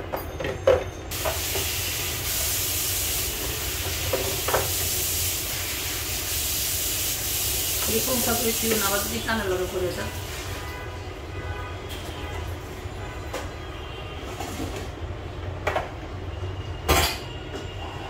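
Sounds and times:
loud steady hiss: 1.1s - 10.8s.

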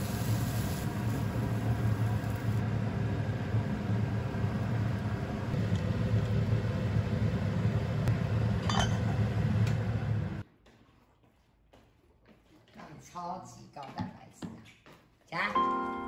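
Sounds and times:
low hum and rumble: 0.0s - 10.4s
metal lid clinking on pot: 8.6s - 9.0s.

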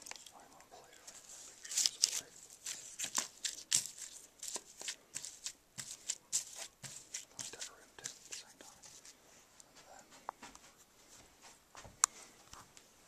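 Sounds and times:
plastic and paper wrappers crinkling: 0.0s - 9.2s.

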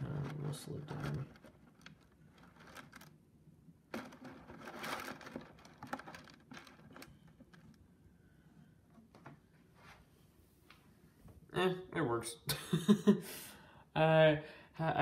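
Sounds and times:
rustling: 0.0s - 3.2s, 3.9s - 8.0s.

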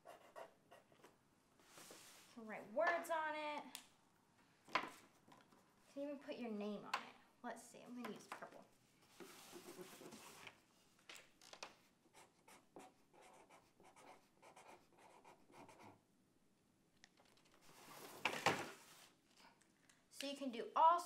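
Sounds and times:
marker scratching on cardboard: 0.0s - 1.1s, 9.2s - 10.4s, 12.1s - 16.0s.

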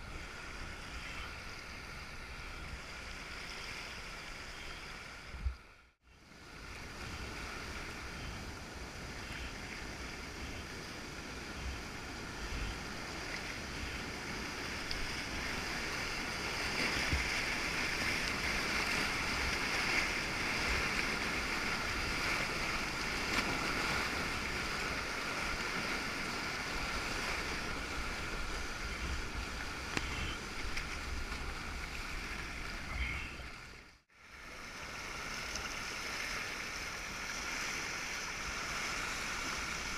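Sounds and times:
wind rumble on microphone: 6.3s - 33.8s
whitewater rushing and splashing: 6.4s - 33.8s, 34.4s - 39.9s.

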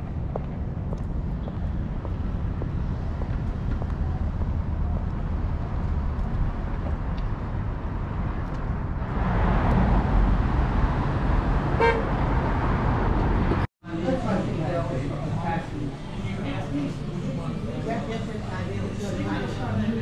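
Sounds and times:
street traffic rumble: 0.0s - 20.0s
car horn toot: 11.8s - 12.2s.

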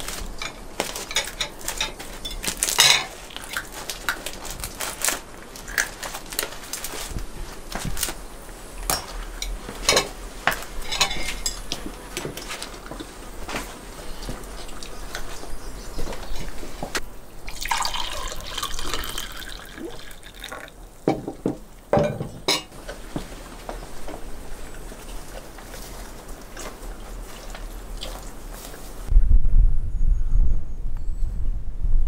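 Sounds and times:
metal skewers clinking on plates: 0.4s - 3.6s, 10.8s - 11.8s, 22.0s - 22.8s.

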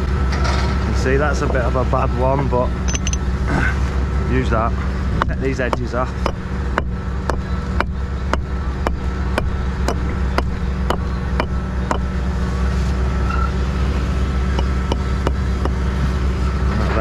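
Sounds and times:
low engine drone: 0.0s - 17.0s
hammer striking stone: 5.2s - 12.1s, 14.6s - 15.8s.

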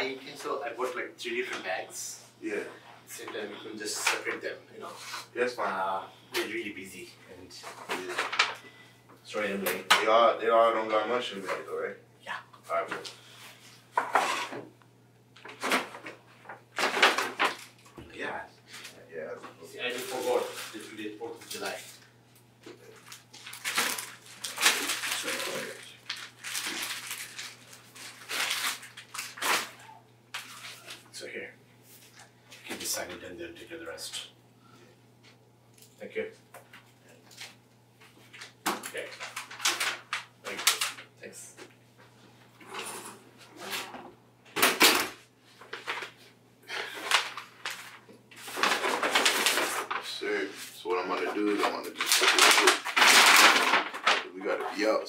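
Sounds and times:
paper bags rustling: 7.6s - 8.6s, 15.4s - 19.0s, 19.6s - 22.1s, 22.8s - 29.8s, 38.2s - 41.0s, 45.5s - 55.0s.

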